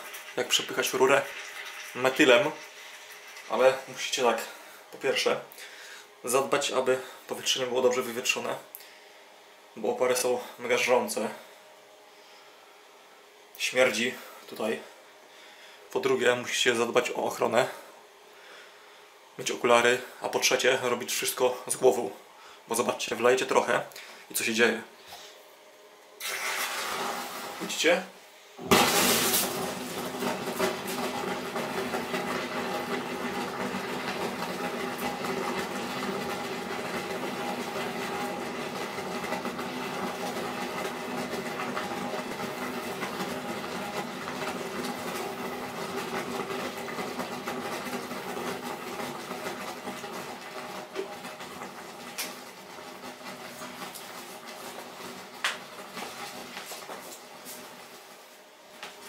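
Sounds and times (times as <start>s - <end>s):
drain cleaner fizzing in pipe: 0.0s - 4.6s.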